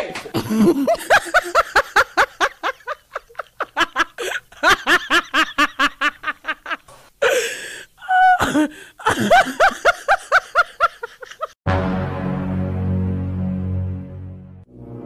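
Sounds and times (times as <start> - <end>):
rapid bursts of laughter: 0.0 - 6.9
background music: 11.7 - 15.0.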